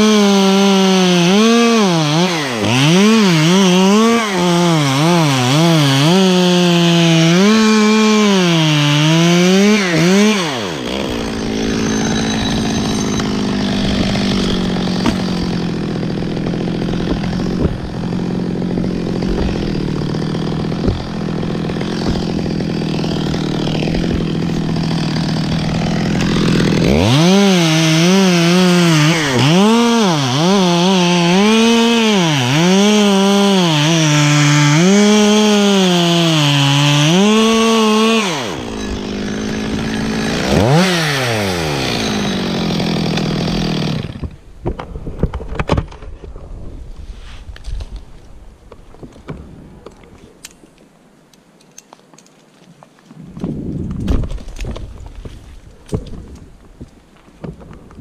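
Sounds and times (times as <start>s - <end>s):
chainsaw cutting wood: 0.0s - 46.0s.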